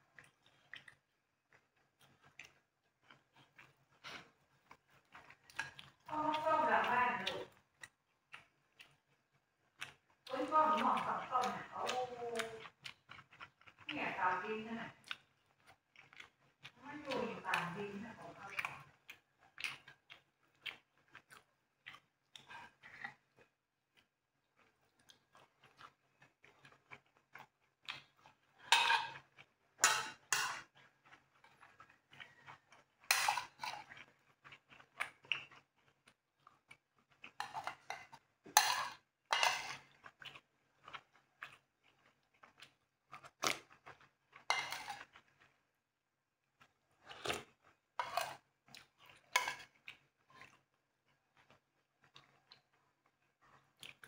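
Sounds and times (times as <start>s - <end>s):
chewing: 0.0s - 45.8s, 46.4s - 54.0s
cutlery scraping ceramic bowl: 28.7s - 29.2s, 29.8s - 30.6s, 33.1s - 33.8s, 37.4s - 39.8s, 44.5s - 45.0s, 48.0s - 48.4s, 49.3s - 49.7s.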